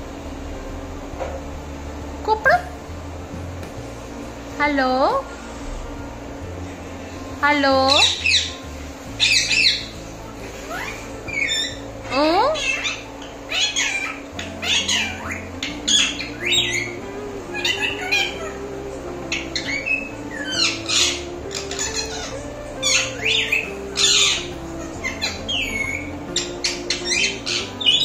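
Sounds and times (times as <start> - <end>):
soft background music: 0.0 - 28.0
parakeet screeching squawks: 7.9 - 8.6, 9.2 - 28.0.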